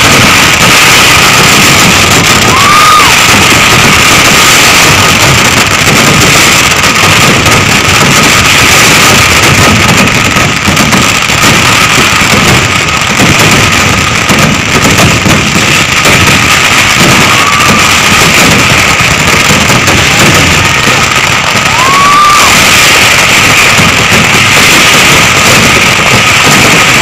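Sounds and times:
fireworks explosions roar: 0:00.0 - 0:27.0
high whistle: 0:00.3 - 0:05.1, 0:17.3 - 0:17.8, 0:21.7 - 0:23.6.

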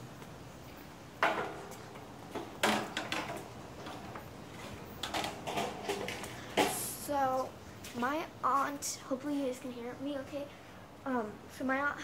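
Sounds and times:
sharp knocks and clatters: 0:01.2 - 0:06.8.

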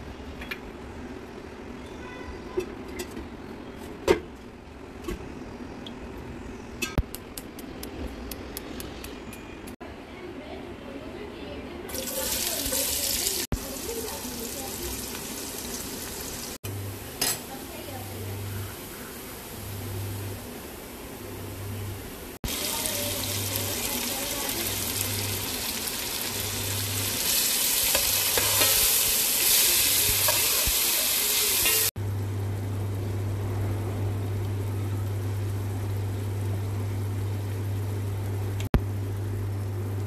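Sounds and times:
oil sizzling in a pot: 0:11.9 - 0:17.9, 0:22.0 - 0:32.0
steady low hum: 0:16.6 - 0:30.9, 0:31.8 - 0:40.0.

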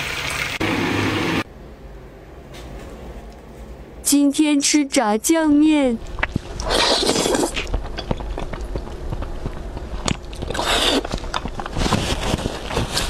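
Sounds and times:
moist chewing: 0:06.1 - 0:11.7
noodles slurped: 0:06.2 - 0:07.8, 0:10.0 - 0:11.5.

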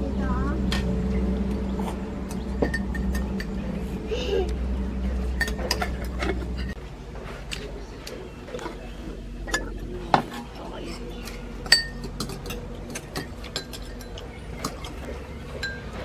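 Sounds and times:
steady low hum: 0:00.0 - 0:16.0
spoons clinking on ceramic bowls: 0:05.4 - 0:06.8, 0:11.6 - 0:15.0, 0:15.6 - 0:16.0.

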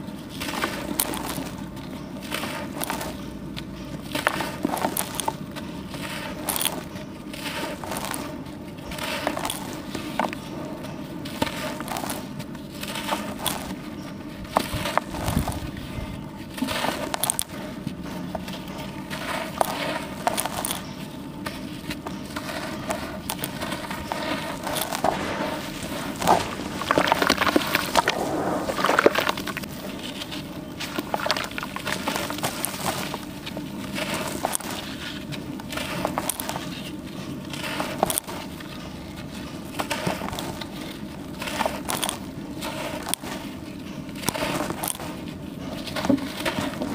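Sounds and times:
charcoal crunching by hand: 0:00.0 - 0:46.9
crumbs falling into plastic tub: 0:24.7 - 0:29.7.

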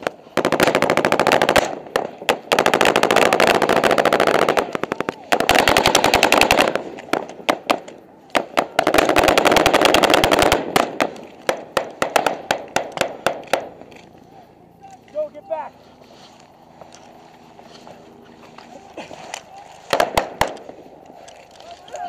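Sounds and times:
automatic gunfire bursts: 0:00.3 - 0:07.8, 0:08.4 - 0:13.7.

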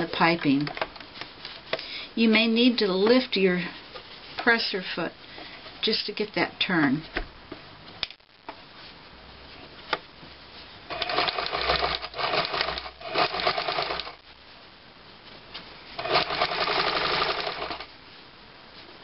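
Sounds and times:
sewing machine stitching: 0:10.9 - 0:14.2, 0:16.0 - 0:17.9.

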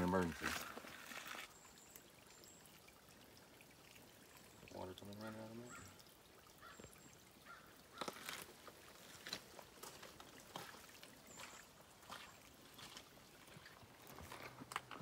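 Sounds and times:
trickle of water over rock: 0:00.0 - 0:15.0
footsteps scuffing on wet gravel: 0:08.0 - 0:14.5.

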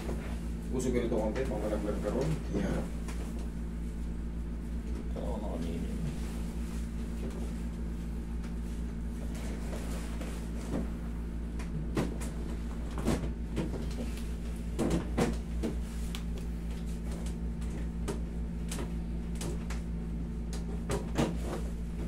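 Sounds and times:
steady low hum: 0:00.0 - 0:22.0
massage table creaking: 0:08.6 - 0:18.3.

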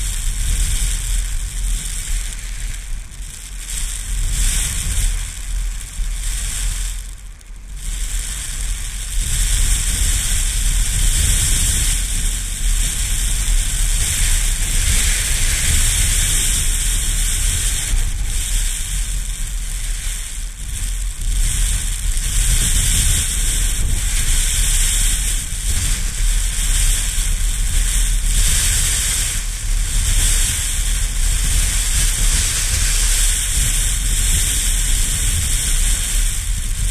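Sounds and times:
wind buffeting microphone: 0:08.0 - 0:36.9.

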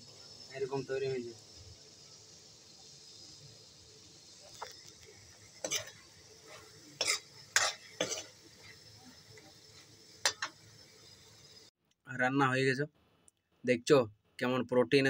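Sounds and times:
metal spatula scraping a pan: 0:05.4 - 0:10.6.

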